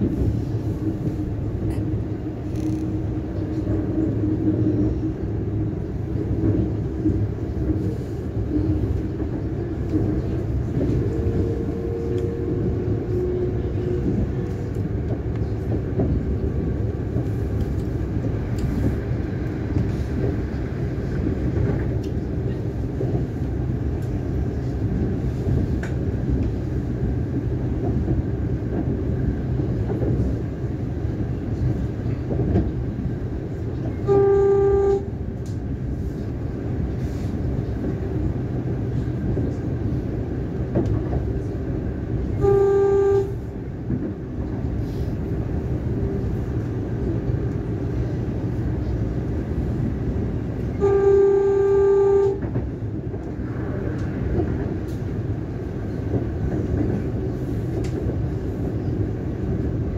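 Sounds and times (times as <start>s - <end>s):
train wheels rumbling on track: 0.0s - 59.9s
train horn toot: 34.0s - 35.2s, 42.2s - 43.5s, 50.6s - 52.6s.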